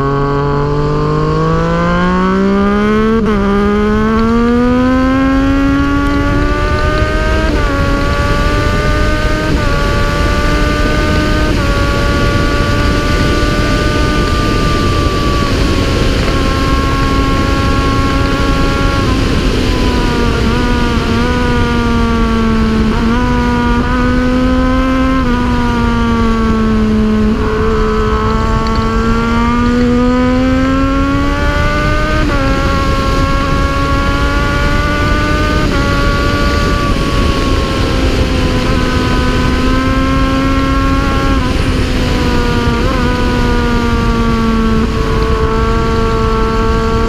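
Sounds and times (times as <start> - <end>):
motorcycle engine at high revs: 0.0 - 47.0
wind rush: 0.0 - 47.0.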